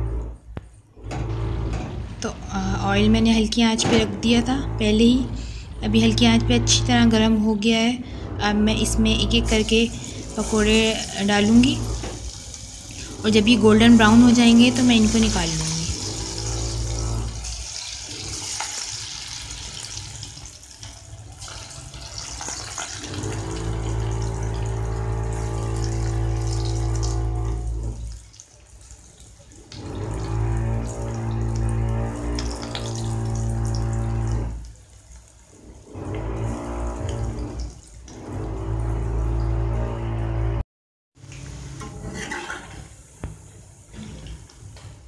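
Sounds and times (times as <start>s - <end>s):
batter sizzling in hot oil: 9.7s - 13.1s, 13.9s - 24.5s.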